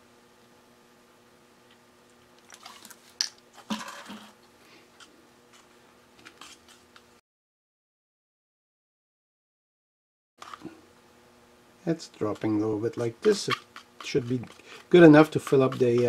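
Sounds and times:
tool scraping paste in cup: 0:06.3 - 0:07.0, 0:12.2 - 0:16.0.

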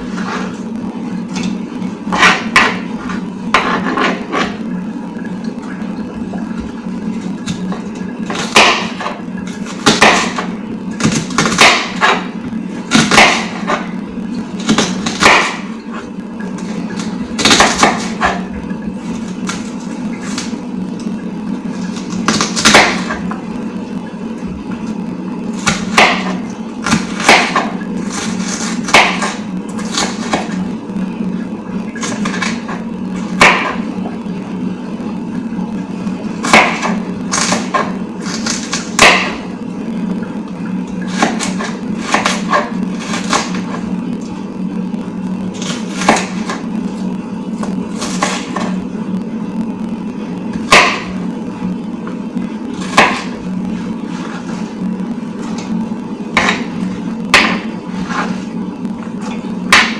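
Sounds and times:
steady low hum: 0:00.0 - 0:59.9
knife chopping on wooden board: 0:09.8 - 0:12.3, 0:12.9 - 0:13.9, 0:14.7 - 0:15.6, 0:17.4 - 0:18.4, 0:25.6 - 0:30.5, 0:33.4 - 0:33.8, 0:36.4 - 0:39.4, 0:41.1 - 0:43.6, 0:56.4 - 0:56.7.

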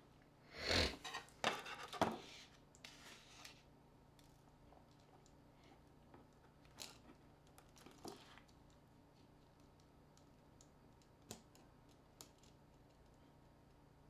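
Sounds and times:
hand tool scraping: 0:00.5 - 0:01.1.

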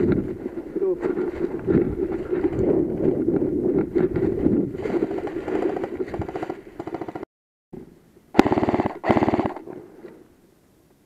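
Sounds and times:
airsoft gun full-auto bursts: 0:05.5 - 0:07.3, 0:08.4 - 0:09.7.

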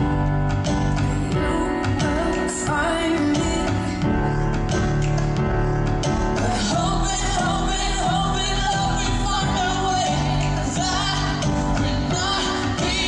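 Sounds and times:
live pop song with vocal: 0:00.0 - 0:13.0.

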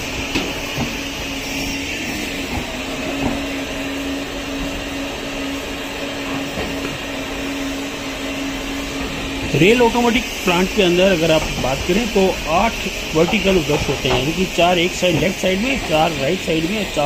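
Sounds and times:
mechanical hum: 0:00.0 - 0:17.0
rotating brushes scrubbing: 0:00.0 - 0:17.0
water spraying and running off: 0:06.4 - 0:17.0.

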